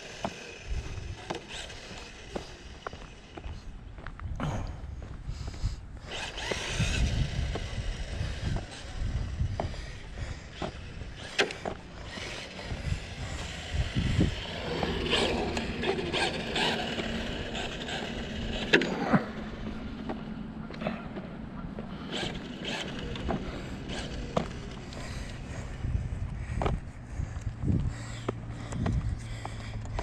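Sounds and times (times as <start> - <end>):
rc car motor whining: 0.0 - 3.6, 6.0 - 20.2, 22.0 - 25.9
wind on microphone: 3.4 - 18.7, 22.1 - 29.4.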